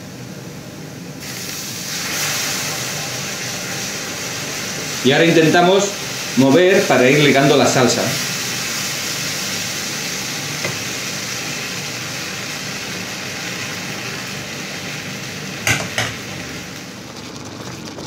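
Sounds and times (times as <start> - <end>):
sauce sizzling in a frying pan: 1.2 - 18.0
wooden spatula stirring: 16.9 - 18.0.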